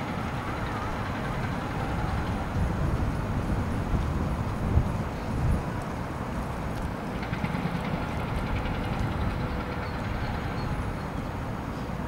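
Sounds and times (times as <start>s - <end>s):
distant city traffic rumble: 0.0s - 12.0s
faint engine hum: 0.0s - 12.0s
wind buffeting microphone: 0.0s - 12.0s.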